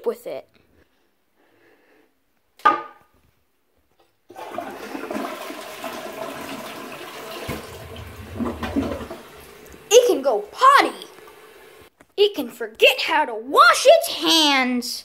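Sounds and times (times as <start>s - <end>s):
toilet flushing: 4.3s - 11.9s.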